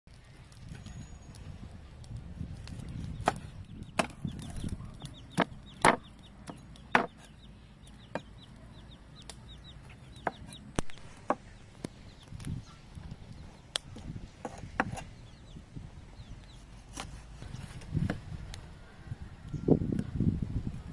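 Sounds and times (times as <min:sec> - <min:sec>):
small birds chirping: 0:00.1 - 0:20.9
cleaver chopping on wooden board: 0:04.0 - 0:04.2, 0:05.4 - 0:07.3, 0:14.4 - 0:15.0.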